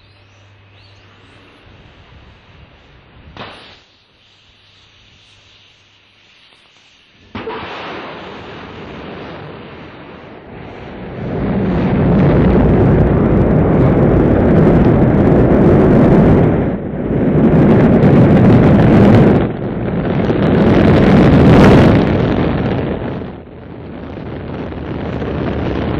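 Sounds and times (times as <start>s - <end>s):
rocket launch roar: 3.3s - 3.9s, 7.2s - 25.9s.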